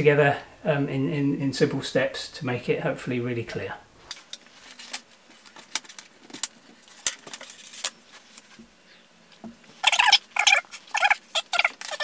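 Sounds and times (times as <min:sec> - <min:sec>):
high squeaky chirps: 0:09.8 - 0:12.0.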